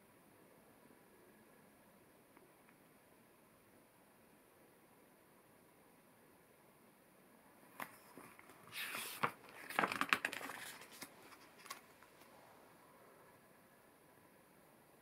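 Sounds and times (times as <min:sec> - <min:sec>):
book page turning: 0:07.8 - 0:12.3.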